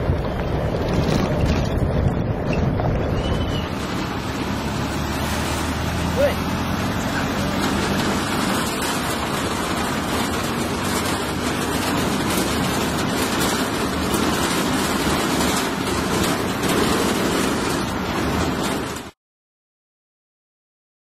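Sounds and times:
wind rushing: 0.0s - 19.0s
truck engine and road noise: 0.0s - 19.2s.

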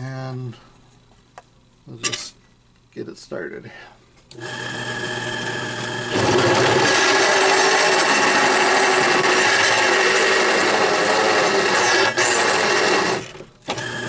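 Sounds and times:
drill press humming: 4.3s - 14.0s
drill bit cutting metal: 4.4s - 14.0s.

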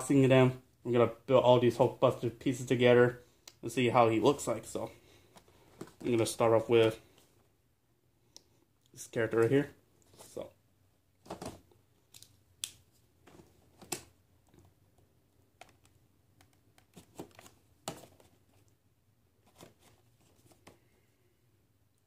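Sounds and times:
cardboard and plastic box handled: 11.2s - 11.8s, 13.2s - 18.7s, 19.4s - 20.8s.

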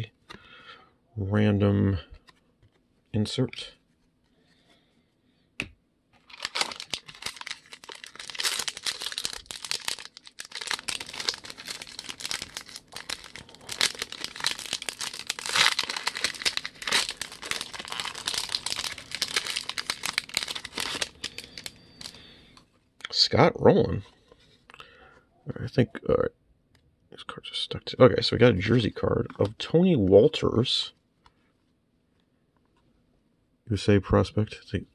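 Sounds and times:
plastic wrapper crinkling: 6.2s - 22.3s.

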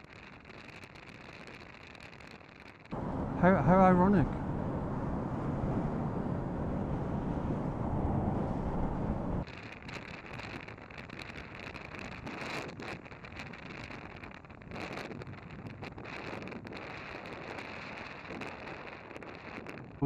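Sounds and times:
motorcycle engine drone: 2.9s - 9.5s
traffic: 2.9s - 9.5s
gusty wind buffeting: 2.9s - 20.0s
wind rushing over microphone: 2.9s - 20.0s.

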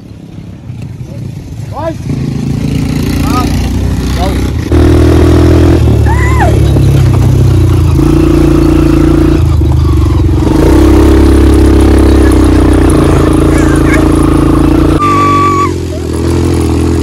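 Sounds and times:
quad bike engine running: 0.3s - 17.0s
high rising-and-falling call: 13.5s - 16.0s.

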